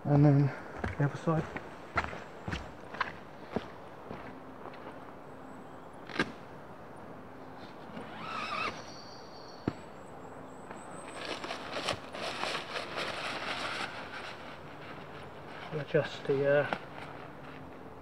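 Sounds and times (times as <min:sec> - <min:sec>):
rustling of leaves and tent nylon: 0:10.8 - 0:18.0.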